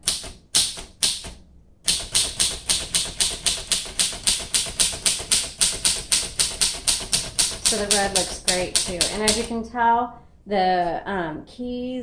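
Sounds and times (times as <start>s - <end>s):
manual typewriter typing: 0.0s - 9.6s.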